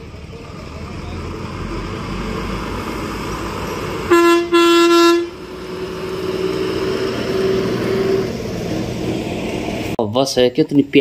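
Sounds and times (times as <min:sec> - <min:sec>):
bus engine and road noise: 0:00.0 - 0:11.0
bus horn: 0:04.0 - 0:08.3.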